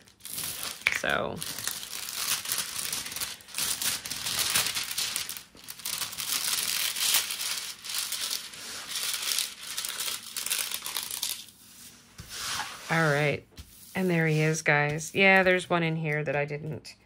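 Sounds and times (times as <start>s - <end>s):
plastic film crinkling: 0.0s - 11.7s.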